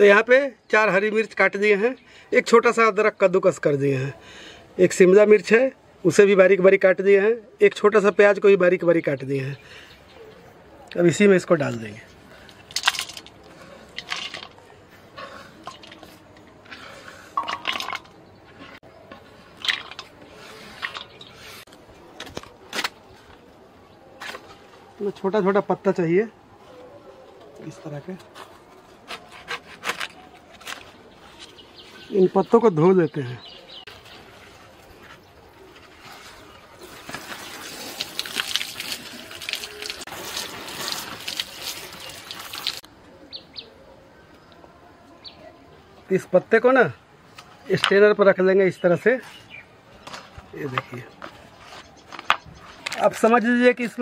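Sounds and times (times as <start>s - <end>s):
leaves washed in water: 35.7s - 42.9s
small splashes: 35.9s - 42.9s.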